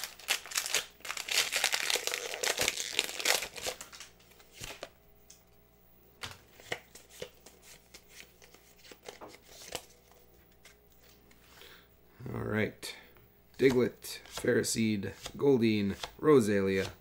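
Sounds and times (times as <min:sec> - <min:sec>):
foil pack crinkling: 0:00.0 - 0:04.8
cards being flicked through: 0:13.6 - 0:14.5.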